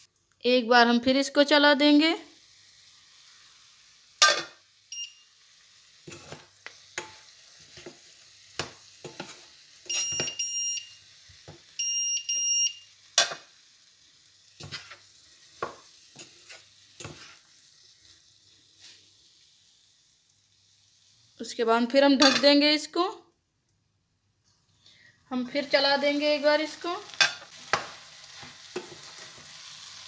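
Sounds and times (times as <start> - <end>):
food sizzling in a pot: 0.8 - 23.1, 24.4 - 30.0
spatula stirring and knocking pot: 6.0 - 10.5, 15.6 - 17.4
long electronic beeps: 9.9 - 11.0.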